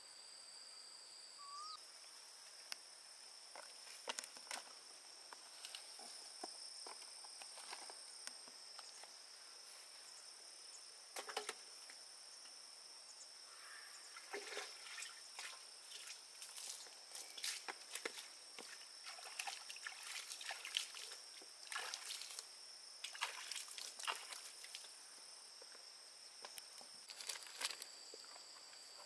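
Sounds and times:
insects chirping: 0.0s - 29.0s
rising bird call: 1.4s - 1.8s.

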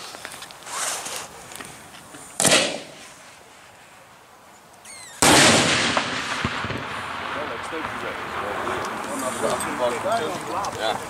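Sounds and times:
firework shells exploding: 2.4s - 3.2s, 4.9s - 11.0s.

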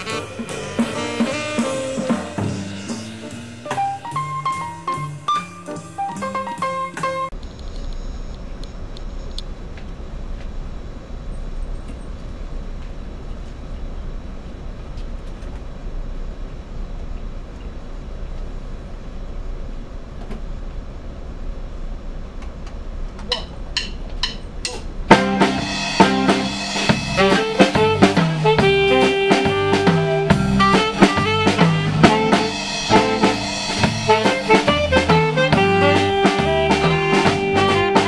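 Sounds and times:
steady low hum: 0.0s - 5.8s, 7.3s - 38.0s
live band playing: 0.0s - 7.3s, 25.1s - 38.0s.

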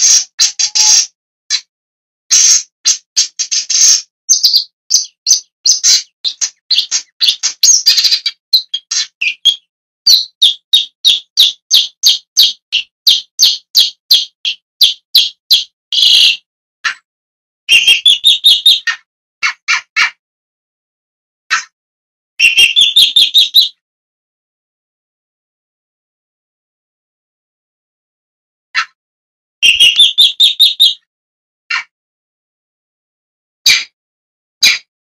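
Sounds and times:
bird harsh calls: 0.0s - 1.7s, 2.3s - 17.0s, 17.7s - 20.2s, 22.4s - 23.8s, 29.6s - 31.0s, 31.7s - 31.9s, 33.7s - 33.9s, 34.6s - 34.9s.

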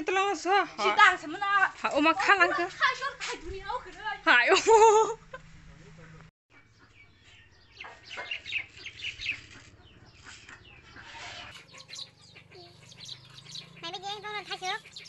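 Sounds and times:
chickens clucking: 6.5s - 15.0s.

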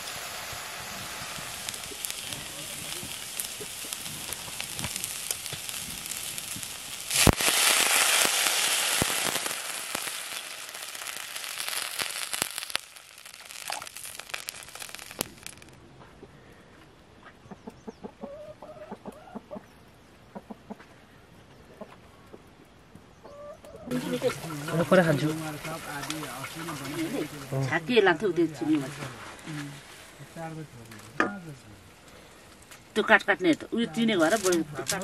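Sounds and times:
water hissing in hot pan: 0.0s - 15.7s, 23.9s - 30.5s
greens crackling in a wok: 0.0s - 15.8s, 23.9s - 35.0s
chicken clucking: 17.4s - 20.9s, 23.2s - 24.1s.

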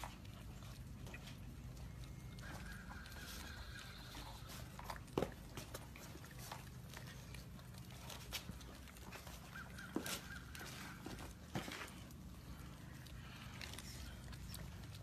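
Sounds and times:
puppy whining: 0.0s - 12.0s
puppies licking wetly: 0.0s - 15.0s.

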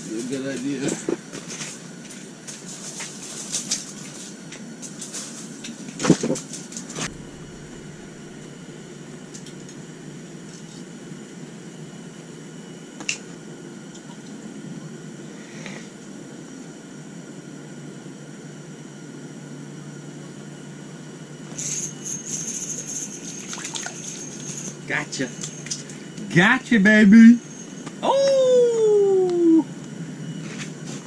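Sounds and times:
sharp thump: 7.0s - 8.5s.

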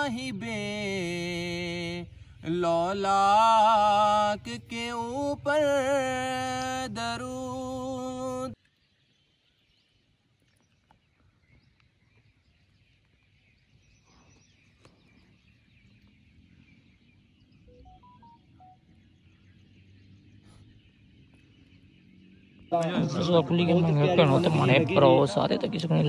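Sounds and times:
man chanting: 0.0s - 8.6s
faint outdoor ambience: 0.0s - 26.0s.

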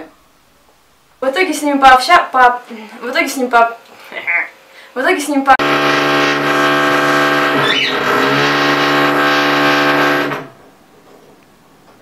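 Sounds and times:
loud machine drone: 5.6s - 10.6s.

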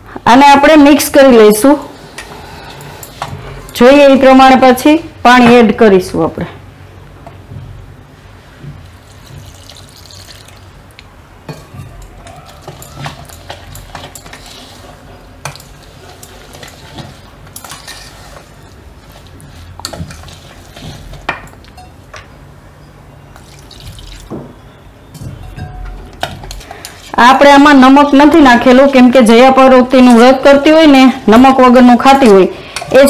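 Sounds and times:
whisk scraping metal bowl: 12.2s - 21.9s.

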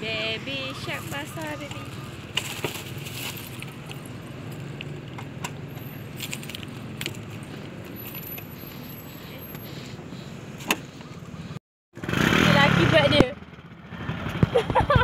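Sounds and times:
road traffic hum: 0.0s - 15.0s
keys jangling and clicking: 5.8s - 9.0s.

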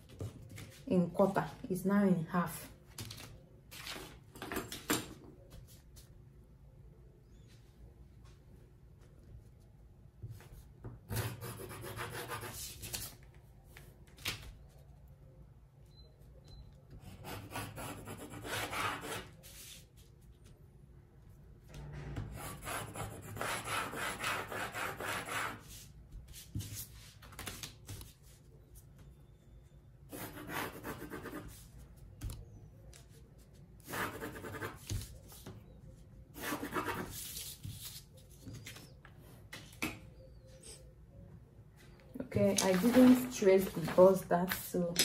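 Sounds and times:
pencil scratching on paper: 11.1s - 12.8s, 17.0s - 19.7s, 22.4s - 25.9s, 30.1s - 31.7s, 33.8s - 34.9s, 36.4s - 37.5s.

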